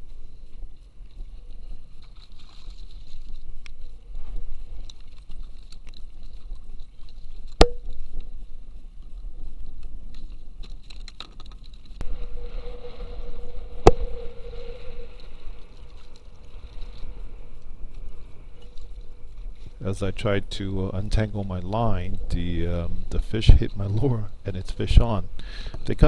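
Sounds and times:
small clicks of gear: 4.7 - 12.0
low steady rumble: 11.9 - 26.0.

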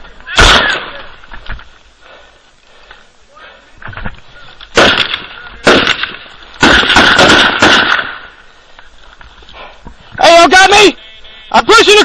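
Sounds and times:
small-arms gunfire: 0.4 - 1.0, 4.7 - 8.3.

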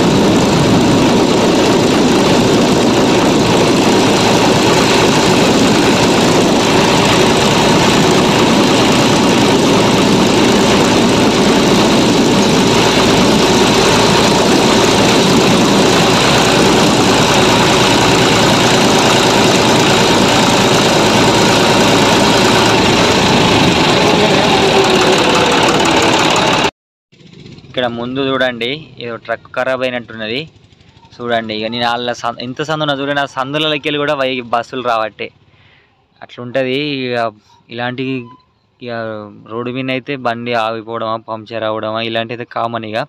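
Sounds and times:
tractor diesel engine running: 0.0 - 34.4.

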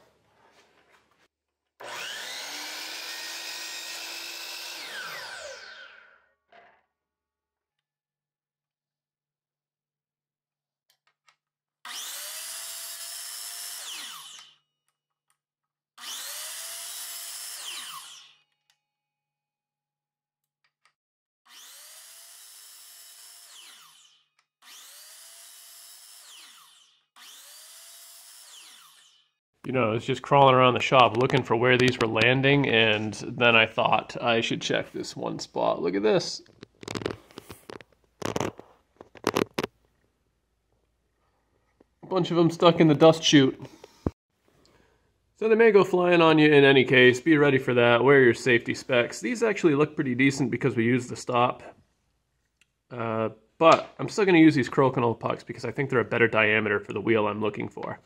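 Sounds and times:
saw blade cutting wood: 1.8 - 6.1, 11.9 - 14.6, 16.0 - 18.5, 21.5 - 29.3
miter saw motor whining: 1.8 - 6.2, 11.9 - 14.6, 16.0 - 18.4, 21.5 - 29.2.

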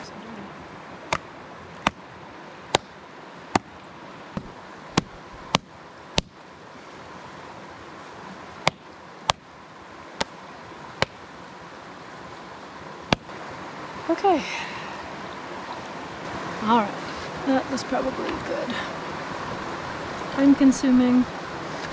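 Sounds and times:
creek water running: 0.0 - 21.9
wet leather slapping: 1.1 - 2.0, 3.5 - 3.7, 8.6 - 9.4.

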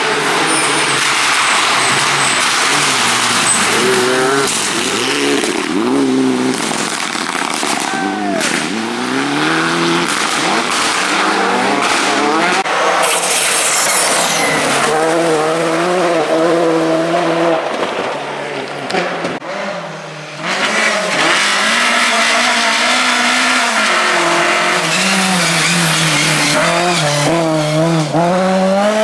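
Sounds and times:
rally car engines revving: 0.0 - 29.0
sharp cracks: 6.4 - 8.8.

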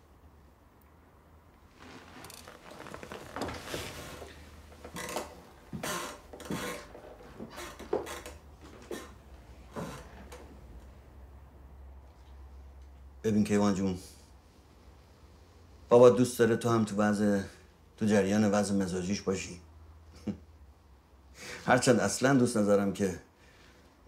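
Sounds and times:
rubbing and shuffling: 1.6 - 8.0.

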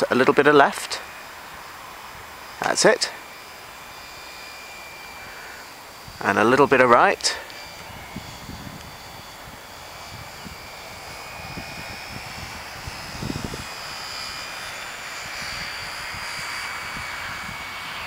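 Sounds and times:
model airplane motor whine: 0.0 - 18.0
wind buffeting microphone: 5.8 - 6.3, 7.6 - 18.0.

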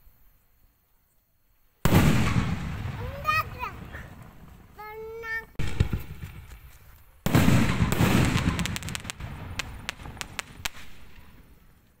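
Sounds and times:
firework bursting with loud bang: 1.8 - 5.0, 5.6 - 11.8
firework crackling: 1.8 - 12.0.

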